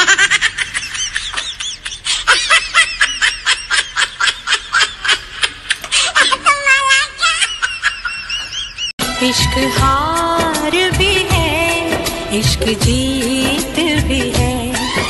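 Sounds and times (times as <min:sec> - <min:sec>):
woman laughing hard: 0:00.0 - 0:08.9.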